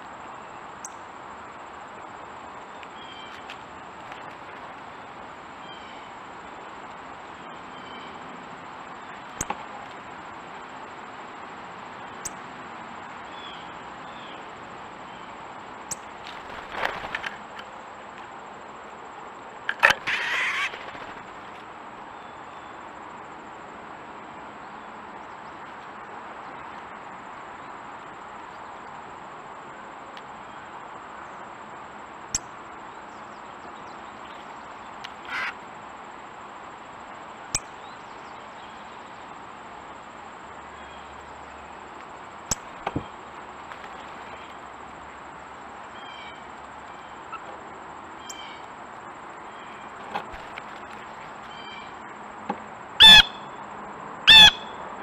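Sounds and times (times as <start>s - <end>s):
background hiss: 0.0s - 55.0s
harsh bird call: 19.8s - 21.0s, 53.0s - 53.5s, 54.3s - 54.8s.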